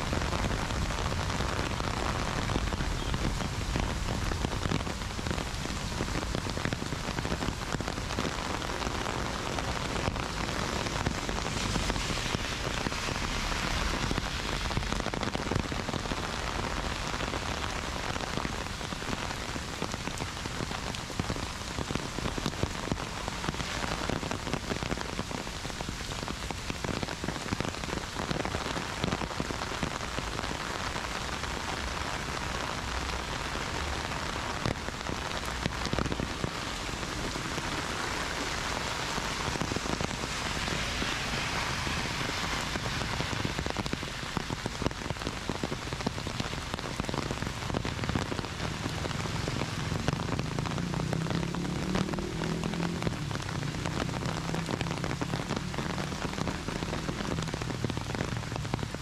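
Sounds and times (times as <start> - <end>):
rain pattering: 0.0 - 59.0.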